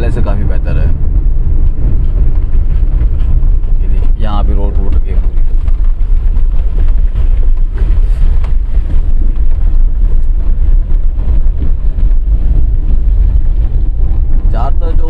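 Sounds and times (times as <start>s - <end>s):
vehicle rumbling over rough road: 0.0s - 15.0s
wind buffeting microphone: 0.0s - 15.0s.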